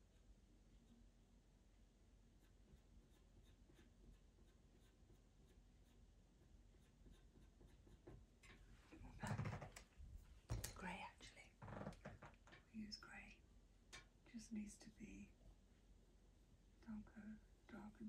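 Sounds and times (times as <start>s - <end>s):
pencil scratching on paper: 2.4s - 8.2s.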